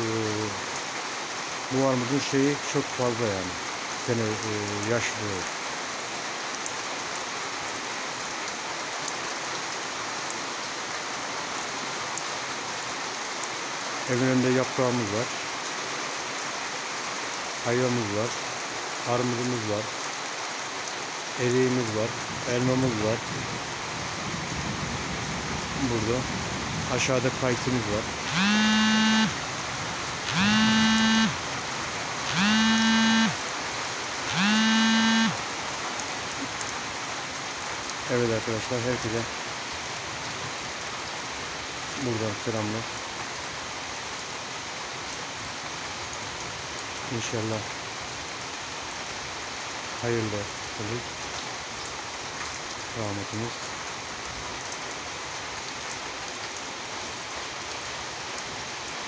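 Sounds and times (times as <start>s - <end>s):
steady rain: 0.0s - 59.0s.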